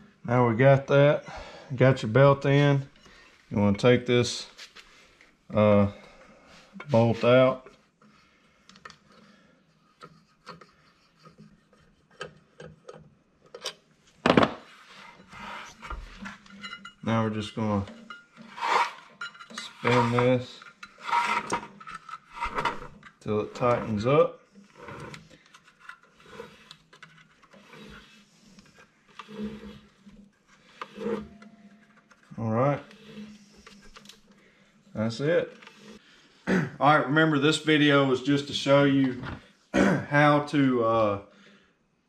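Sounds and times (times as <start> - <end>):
bolt clicking and scraping: 9.9 - 13.8, 17.9 - 23.8, 24.7 - 34.4
drive belt rubbing and ticking: 24.6 - 34.2.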